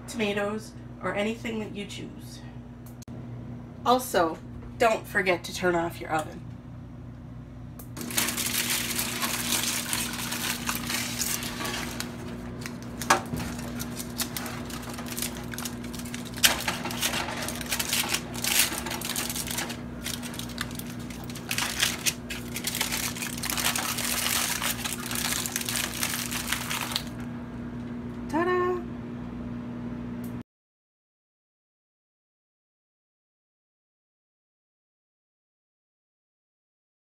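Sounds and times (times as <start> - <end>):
aluminium foil crinkling: 8.0 - 27.3.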